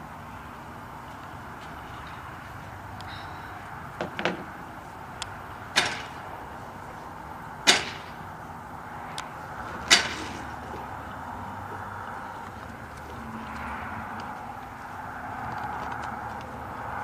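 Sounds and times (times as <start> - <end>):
seesaw clacking and knocking: 7.6 - 8.2.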